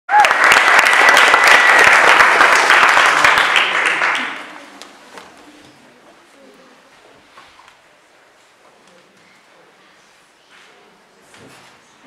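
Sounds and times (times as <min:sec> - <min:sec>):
audience applauding and cheering: 0:00.1 - 0:04.6.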